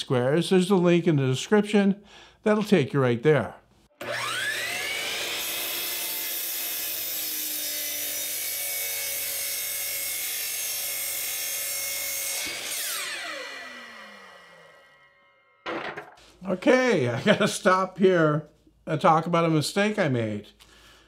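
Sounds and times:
miter saw motor whining: 4.0s - 7.2s, 12.4s - 15.2s
saw cutting wooden board: 4.0s - 15.6s.

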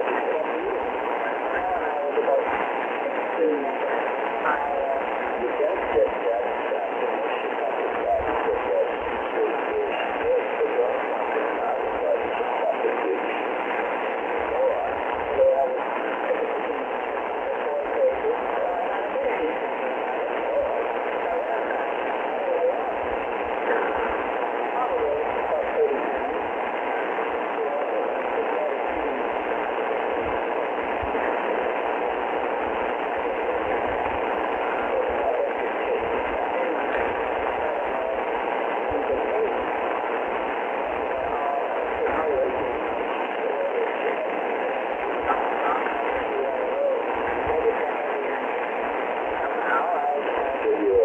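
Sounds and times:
faint radio voice: 0.0s - 51.0s
radio static hiss: 0.0s - 51.0s.

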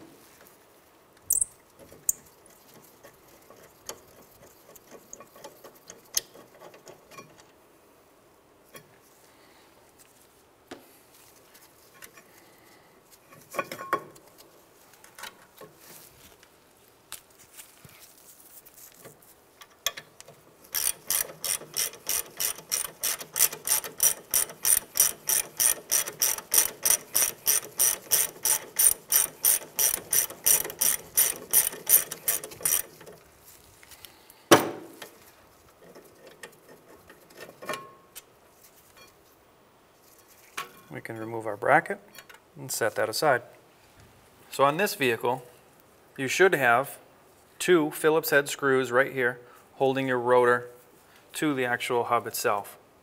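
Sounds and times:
hand ratchet clicking: 19.8s - 33.2s.

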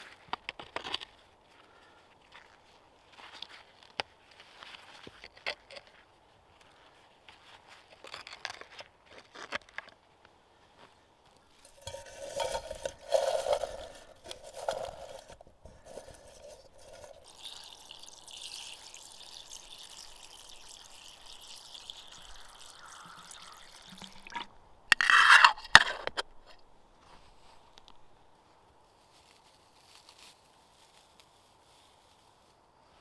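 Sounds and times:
metal lid clattering: 11.6s - 15.4s
water pouring into metal pot: 11.6s - 24.6s.

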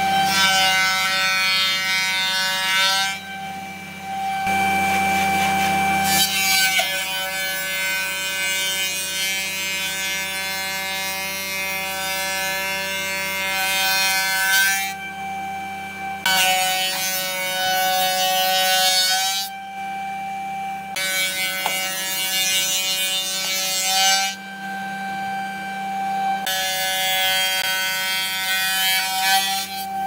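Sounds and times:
wood rasping against sanding belt: 4.8s - 6.9s.

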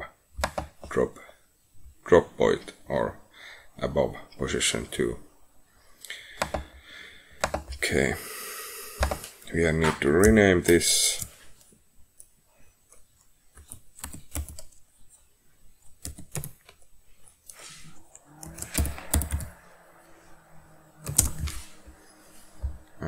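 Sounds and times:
keyboard keys clicking: 18.4s - 19.5s, 21.0s - 21.5s.

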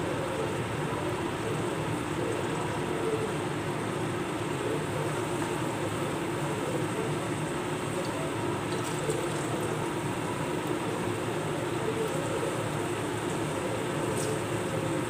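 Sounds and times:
range hood fan humming: 0.0s - 15.0s.

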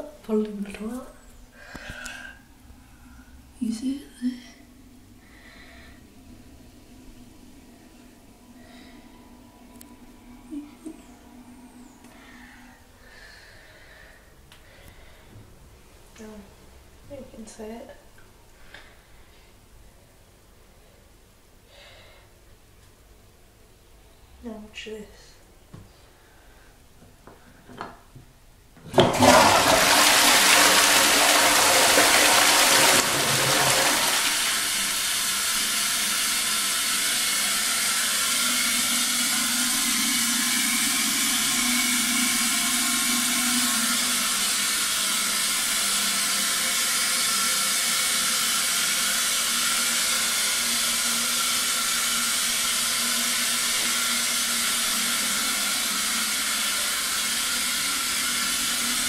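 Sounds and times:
toilet flushing: 28.8s - 59.0s
cistern refilling hiss: 29.2s - 59.0s.

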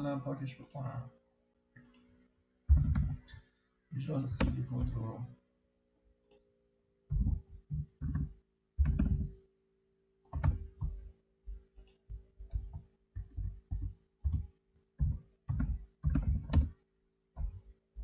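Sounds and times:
typing on computer keyboard: 2.7s - 3.2s, 7.1s - 9.3s, 10.4s - 11.0s, 11.8s - 14.4s, 15.0s - 16.8s.

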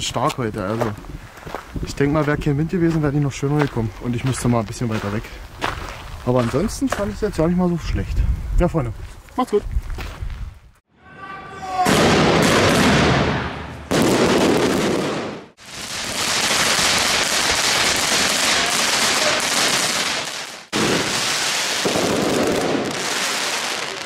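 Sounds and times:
fireworks hissing and crackling: 14.0s - 24.0s.

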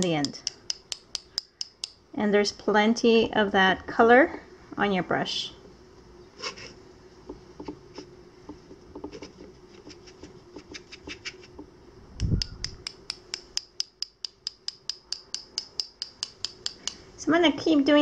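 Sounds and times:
sharp clicks: 0.2s - 2.0s, 12.2s - 17.0s
paintbrush tapping: 7.3s - 17.0s.

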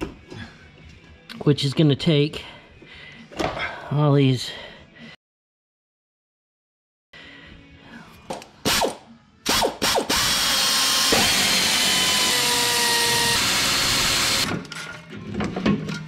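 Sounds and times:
cordless power tool motor: 10.1s - 14.5s.

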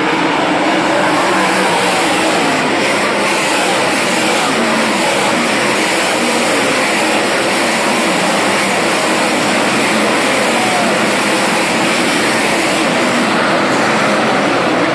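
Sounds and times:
race car engines droning: 0.0s - 14.9s.

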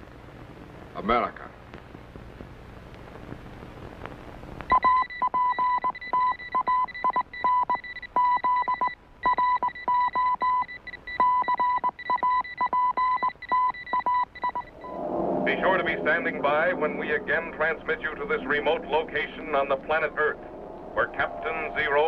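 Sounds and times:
electronic morse code beeps: 4.7s - 15.0s.

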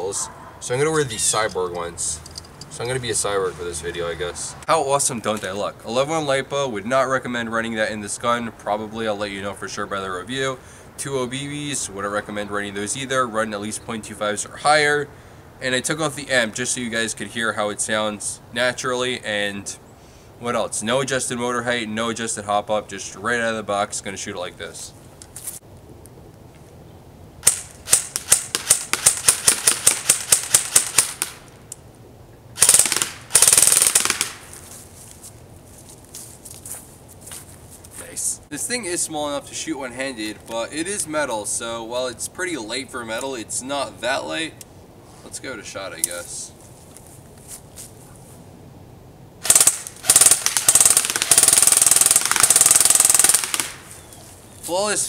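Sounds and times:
airsoft gun full-auto bursts: 27.4s - 31.4s, 32.6s - 34.4s, 49.4s - 53.8s
airsoft gun single shots: 27.4s - 31.5s, 32.6s - 34.5s, 49.4s - 53.9s.

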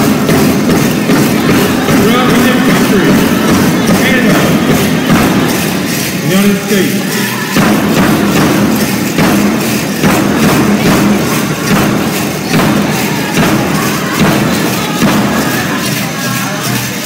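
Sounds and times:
big bass drum beat: 0.0s - 16.8s
people singing: 1.1s - 6.0s, 7.1s - 8.2s, 12.4s - 17.0s.

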